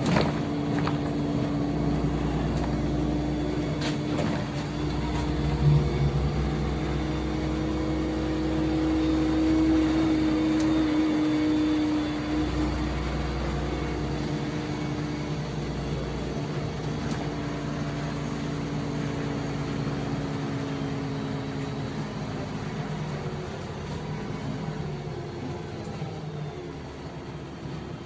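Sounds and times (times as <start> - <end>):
bus engine hum with low whine: 0.0 - 28.0
deep rumble: 0.1 - 9.8.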